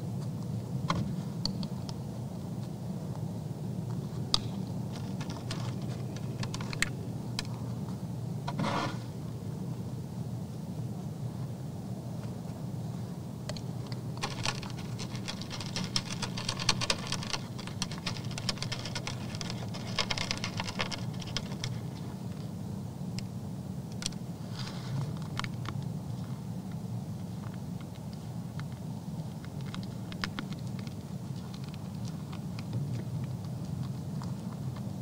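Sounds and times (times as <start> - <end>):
steady low hum: 0.0 - 35.0
deer crunching feed: 4.0 - 7.9, 13.7 - 22.3, 27.4 - 35.0.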